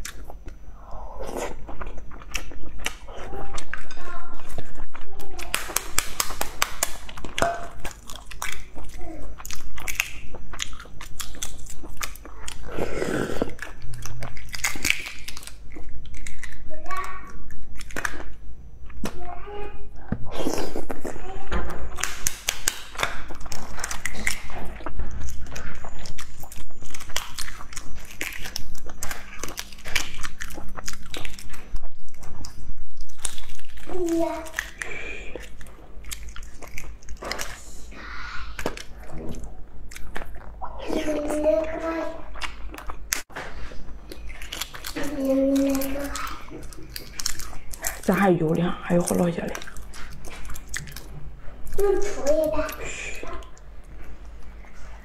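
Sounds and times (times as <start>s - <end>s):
eggshell crackling: 0.0s - 19.3s, 20.2s - 55.0s
eggshell cracking: 21.9s - 24.6s, 44.0s - 51.1s.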